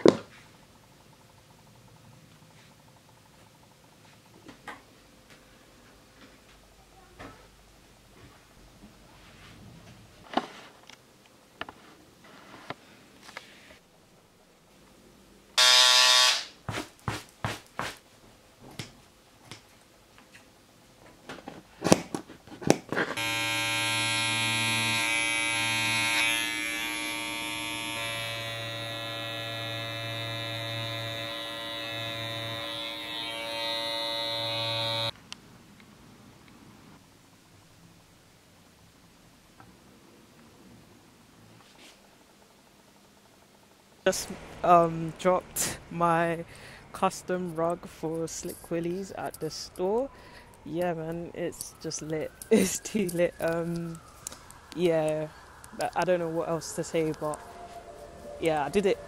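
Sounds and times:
electric clipper running: 0:15.6 - 0:16.6, 0:23.2 - 0:35.2
loud buzz: 0:15.6 - 0:16.6, 0:23.2 - 0:35.2, 0:44.1 - 0:46.9.

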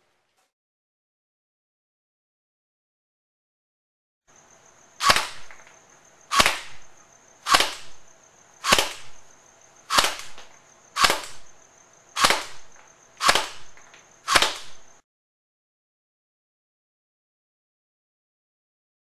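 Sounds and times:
airsoft rifle single shots: 0:05.0 - 0:05.7, 0:06.3 - 0:09.3, 0:09.9 - 0:11.6, 0:12.2 - 0:14.9.

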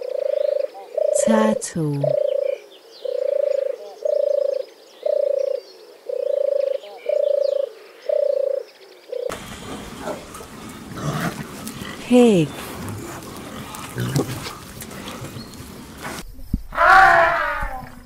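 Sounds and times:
pigs grunting: 0:09.3 - 0:16.2.

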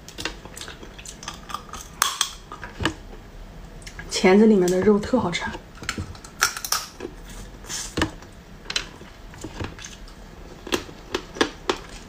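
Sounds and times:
crab shell cracking while eating: 0:00.0 - 0:02.7, 0:05.8 - 0:07.2, 0:09.7 - 0:12.0.

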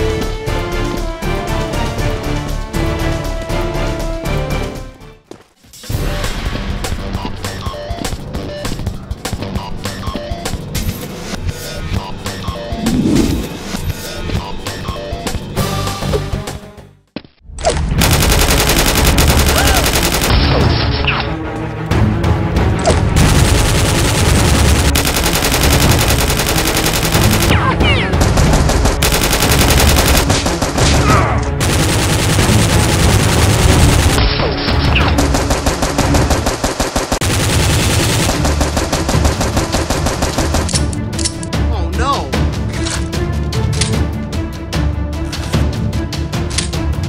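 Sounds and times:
action music: 0:00.0 - 0:05.2, 0:05.8 - 0:16.9, 0:17.8 - 0:47.0
automatic gunfire sound effects: 0:18.0 - 0:21.0, 0:23.1 - 0:34.2, 0:34.8 - 0:40.8.

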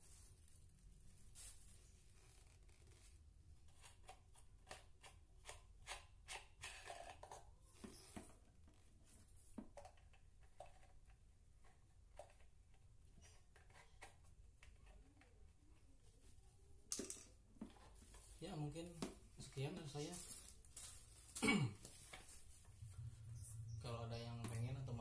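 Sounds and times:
plastic parts clicking and scraping: 0:03.6 - 0:08.4, 0:09.5 - 0:15.4.

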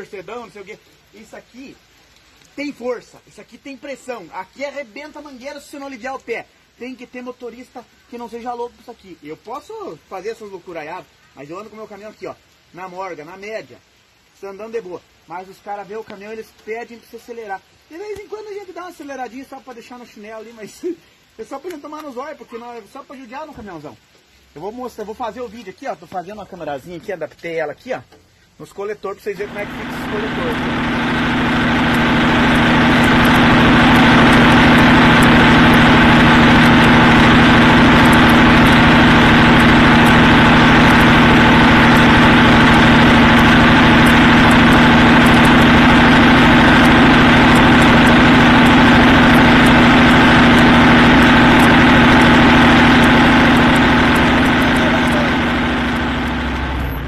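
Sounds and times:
diesel engine running: 0:29.4 - 0:57.0.

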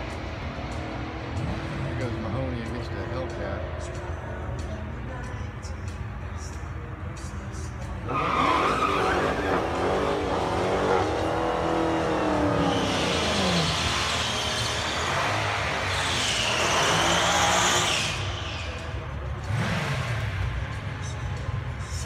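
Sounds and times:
car engines revving: 0:00.0 - 0:22.0
tyres squealing: 0:08.1 - 0:10.1.

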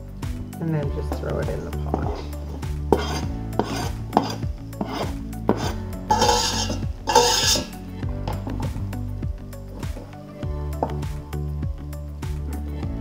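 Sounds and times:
knife scraping cutting board: 0:01.9 - 0:08.6.

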